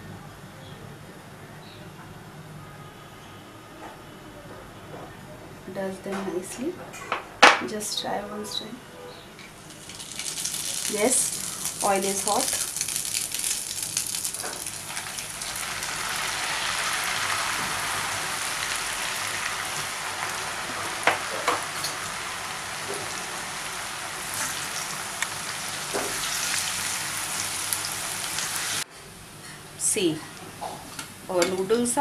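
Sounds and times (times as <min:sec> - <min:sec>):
noodles sizzling in hot oil: 0:09.6 - 0:28.8.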